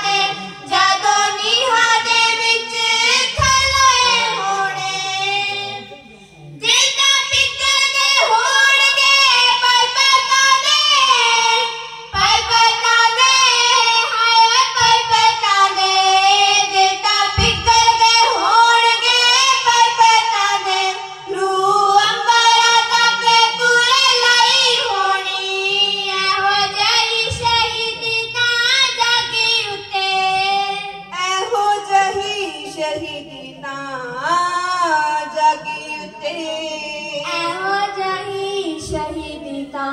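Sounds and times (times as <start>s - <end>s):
young voices singing ballad together: 0.0s - 5.9s.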